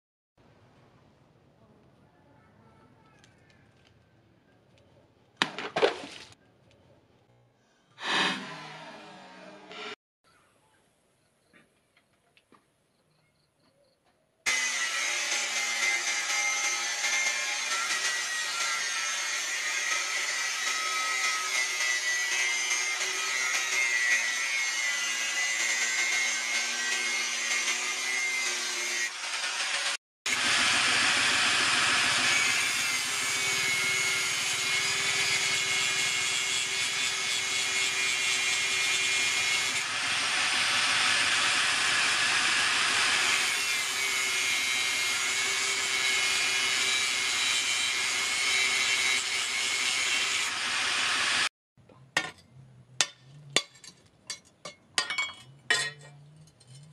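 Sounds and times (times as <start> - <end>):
angle grinder cutting steel: 8.0 - 10.0, 14.5 - 51.5.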